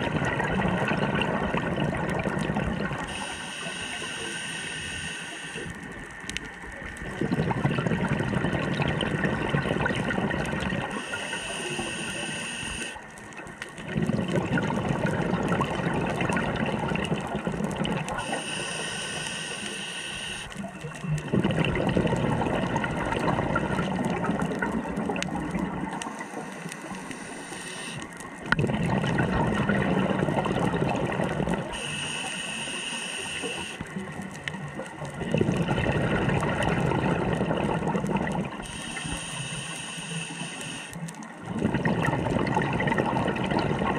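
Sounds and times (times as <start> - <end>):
exhaled bubbles rumbling underwater: 0.0 - 43.9
regulator inhalation hiss: 3.0 - 6.0, 10.9 - 13.0, 18.1 - 20.7, 26.0 - 28.3, 31.7 - 34.0, 38.6 - 41.1.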